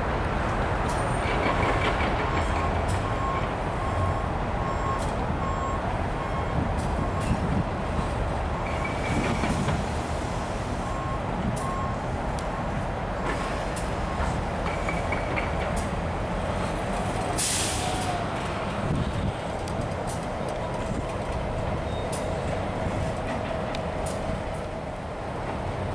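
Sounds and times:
diesel locomotive rumble: 0.0s - 25.9s
wind noise on microphone: 4.9s - 12.0s, 17.8s - 24.7s
crossing warning bell ringing: 8.5s - 9.4s.

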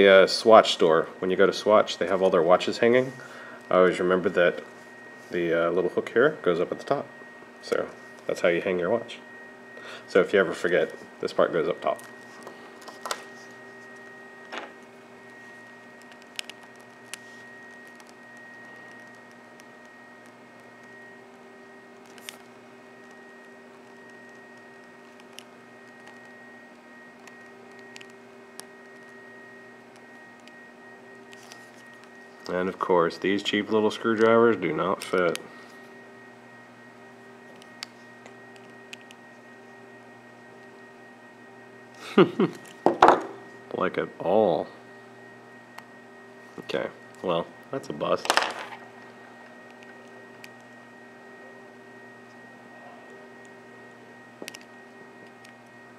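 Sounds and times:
electrical hum: 0.0s - 55.9s.

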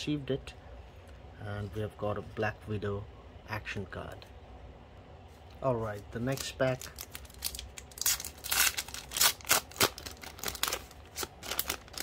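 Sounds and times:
plastic wrapper crinkling and ripping: 6.0s - 12.0s.

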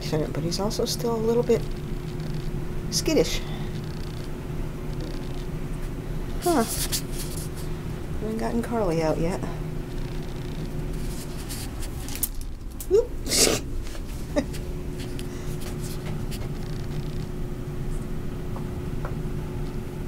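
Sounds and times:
low room hum: 0.0s - 20.0s.

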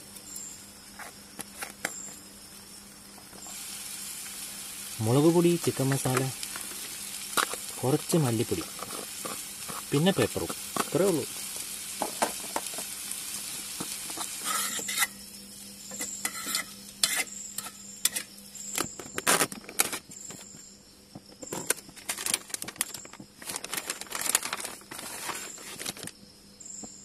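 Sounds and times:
onions sizzling in a pan: 0.0s - 20.3s
cricket chirping: 0.0s - 27.0s
packaging rustling and crinkling: 18.8s - 20.4s, 21.5s - 26.2s.

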